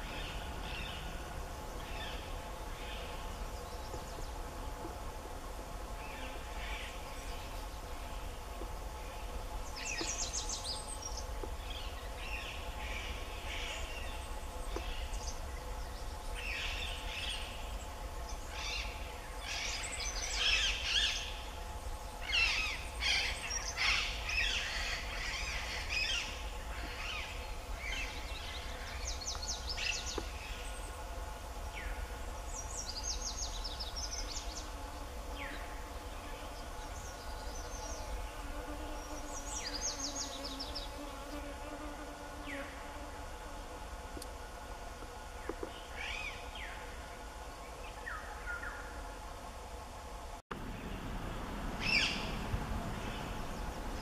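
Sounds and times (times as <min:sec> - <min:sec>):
faint steady hum: 0:00.0 - 0:54.0
birds chirping: 0:06.0 - 0:31.0, 0:50.6 - 0:54.0.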